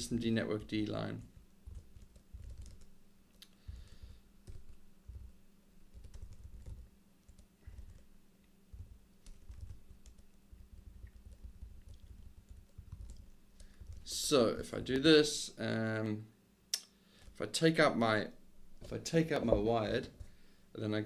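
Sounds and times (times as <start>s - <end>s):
steady low hum: 0.0s - 16.1s
typing on computer keyboard: 1.3s - 3.0s, 4.4s - 8.1s, 8.7s - 14.1s.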